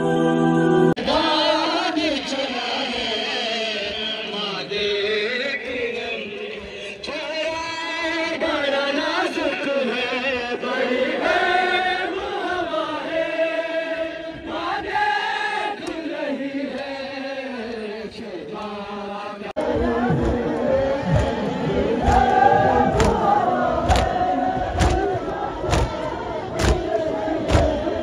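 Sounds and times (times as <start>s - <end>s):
man chanting lament over loudspeaker: 1.0s - 10.9s.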